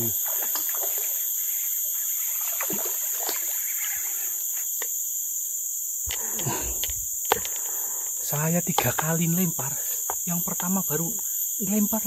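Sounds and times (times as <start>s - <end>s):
insects droning: 0.0s - 12.0s
fish splashing at water surface: 0.2s - 1.3s, 2.3s - 3.8s.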